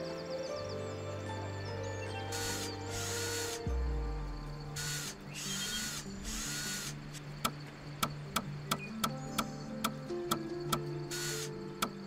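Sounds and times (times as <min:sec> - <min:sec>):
cordless drill boring into log: 0:02.3 - 0:03.7, 0:04.8 - 0:07.0, 0:11.1 - 0:11.5.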